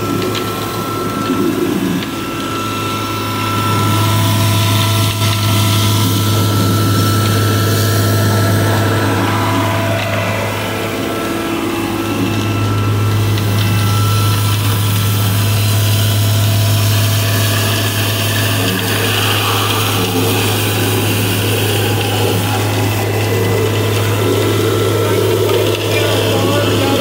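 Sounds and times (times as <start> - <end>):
truck engine drone: 0.0 - 27.0.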